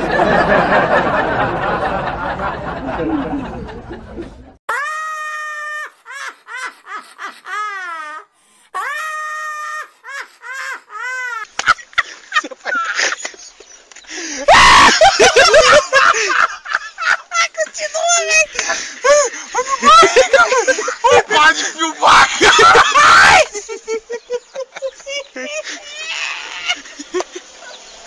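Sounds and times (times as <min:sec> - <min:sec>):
shrieking laughter: 0:00.0 - 0:28.0
high-pitched sped-up laughing: 0:14.7 - 0:27.8.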